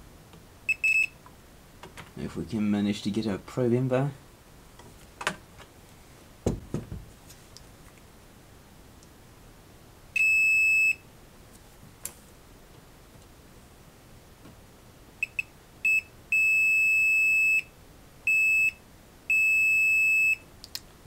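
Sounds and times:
multimeter beeping: 0.7 - 1.2.

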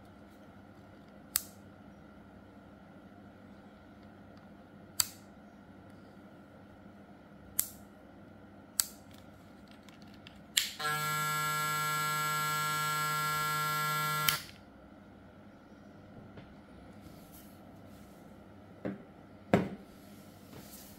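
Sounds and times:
hair clipper switch clicks: 1.3 - 1.6, 5.0 - 5.2, 13.8 - 14.6
hair clipper humming: 10.6 - 14.6.

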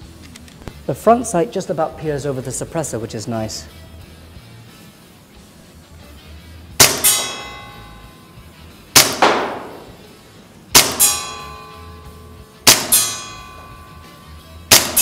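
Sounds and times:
suppressed airsoft pistol shots: 6.8 - 7.5, 9.0 - 10.0, 10.7 - 11.2, 12.7 - 13.3, 14.7 - 15.0
bb pinging on metal target: 6.8 - 8.4, 9.0 - 10.1, 10.8 - 15.0.

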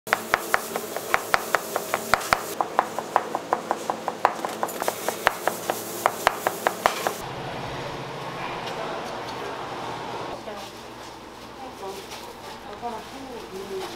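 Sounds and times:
knife chopping on cutting board: 0.1 - 7.2.

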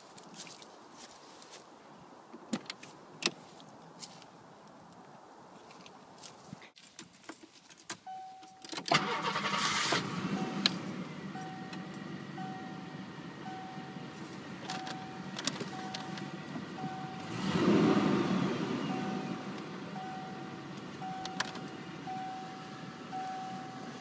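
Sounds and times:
dashboard warning chime: 8.1 - 9.6, 10.2 - 17.6, 18.8 - 24.0
car engine cranking and idling: 8.8 - 24.0.

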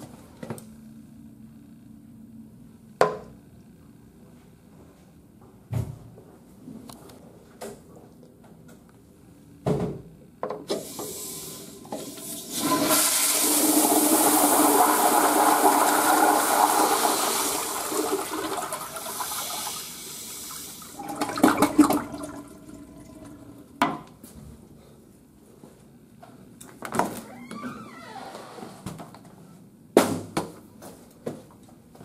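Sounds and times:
toilet flushing: 10.7 - 23.8
water gurgling: 20.9 - 23.7.

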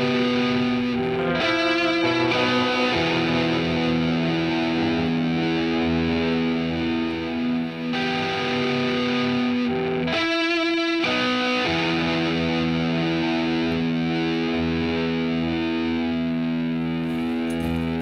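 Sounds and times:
sustained chords music: 0.0 - 18.0
shimmering passage: 0.6 - 5.3.

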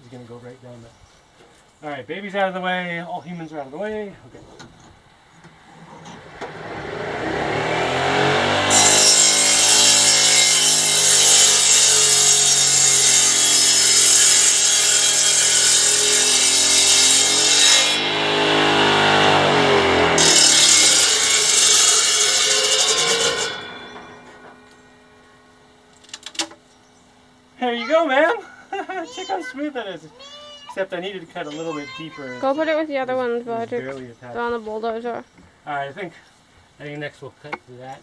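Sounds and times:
circular sawmill cutting log: 6.0 - 24.8.

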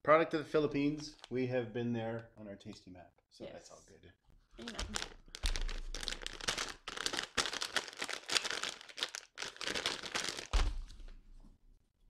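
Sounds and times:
plastic snack bag crinkling: 0.9 - 1.4, 4.6 - 11.1.

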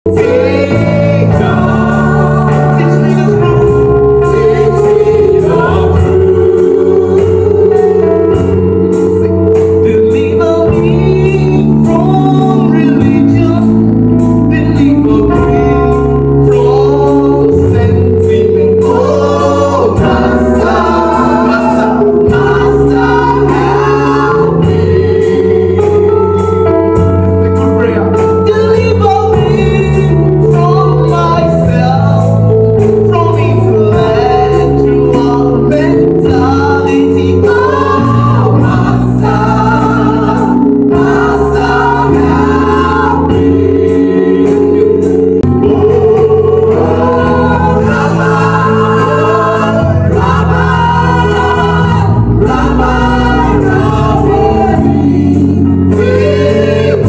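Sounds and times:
man singing lead: 0.0 - 8.8, 9.6 - 26.6, 27.6 - 57.0
backing singers: 0.1 - 8.1, 18.6 - 26.2, 33.6 - 57.0.

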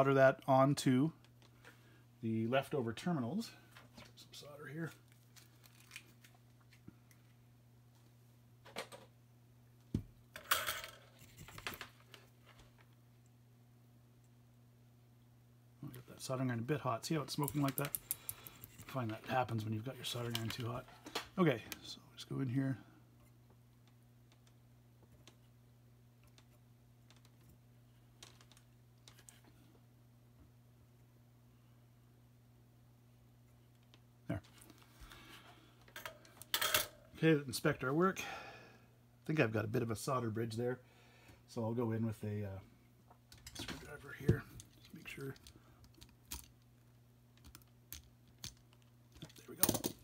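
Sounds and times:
faint electrical hum: 0.0 - 50.0.

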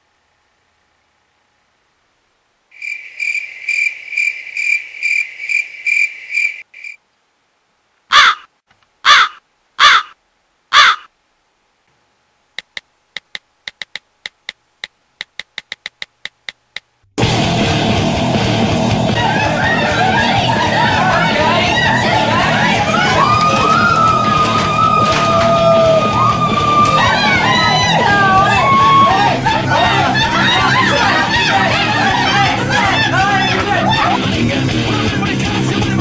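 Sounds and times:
cricket chirping: 2.7 - 7.0
crow cawing: 8.1 - 11.1
quick light ticks: 12.6 - 16.9.

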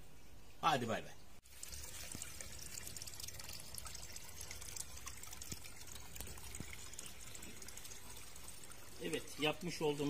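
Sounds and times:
water trickling into pond: 0.4 - 10.0.

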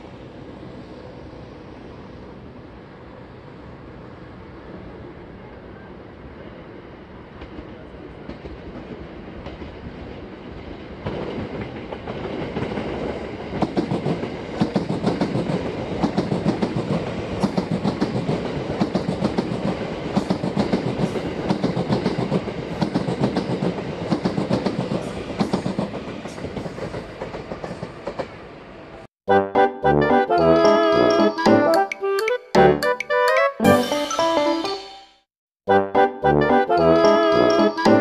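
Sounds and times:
electric train passing: 0.0 - 29.1
wheels clacking over rail joints: 10.6 - 28.4.

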